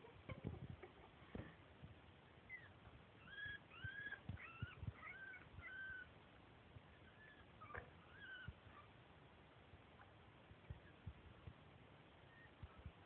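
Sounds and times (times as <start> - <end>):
guinea pig squeaking: 2.5 - 6.1, 6.9 - 8.9.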